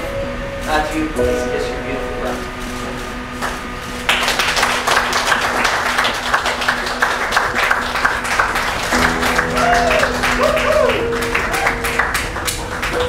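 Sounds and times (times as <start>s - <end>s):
audience applauding: 3.4s - 13.0s.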